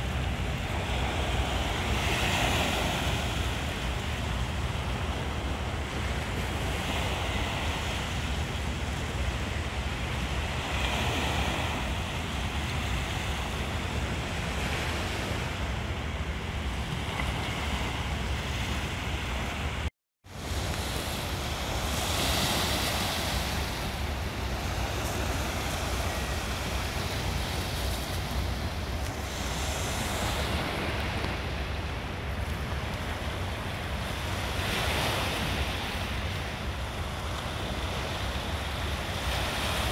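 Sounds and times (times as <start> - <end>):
wind rumbling on microphone: 0.0 - 39.9
waves washing against rocks: 20.4 - 39.9.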